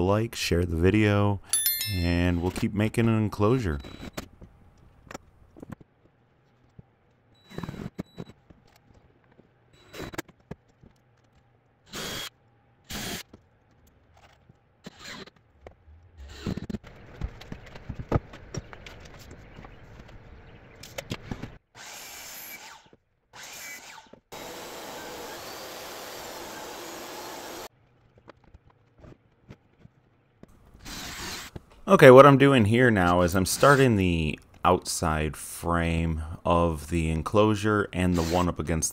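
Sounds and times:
drill driving screws into wood: 0:11.9 - 0:12.3, 0:12.9 - 0:13.3, 0:21.7 - 0:27.7, 0:30.8 - 0:31.6
power tool running: 0:24.3 - 0:27.7.

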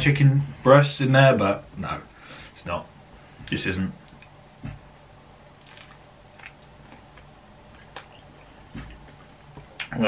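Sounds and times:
mouth smacks and clicks: 0:05.6 - 0:10.0.

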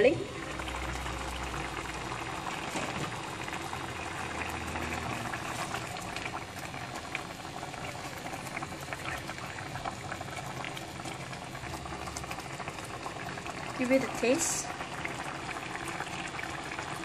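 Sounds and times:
curry bubbling and popping: 0:00.0 - 0:17.0.

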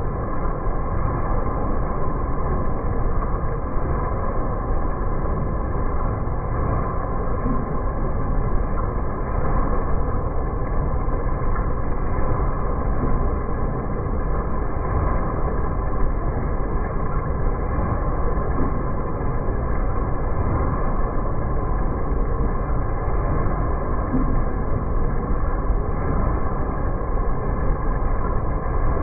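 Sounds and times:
machine clatter and rumble: 0:00.0 - 0:29.0.

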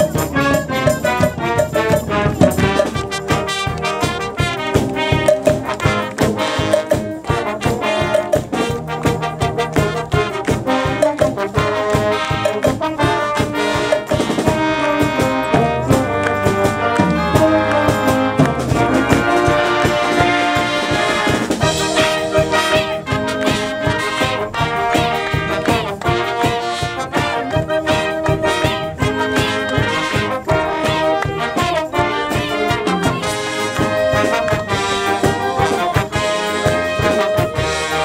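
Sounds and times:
brass and saxophones: 0:00.0 - 0:38.0
marching band playing: 0:00.0 - 0:38.0
steady driving drum beat: 0:00.0 - 0:38.0
sousaphone bass line: 0:12.4 - 0:21.9.

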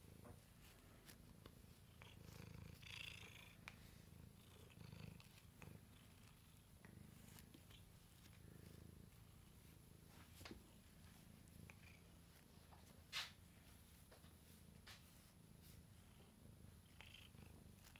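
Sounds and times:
cat purring: 0:00.0 - 0:17.9
brush rustling through fur: 0:00.4 - 0:02.4, 0:07.0 - 0:16.0.

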